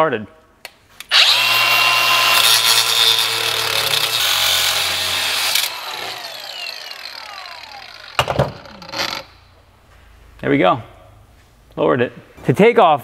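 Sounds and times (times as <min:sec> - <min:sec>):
angle grinder cutting steel: 0:01.1 - 0:09.4
grinder disc spinning down: 0:01.1 - 0:09.5.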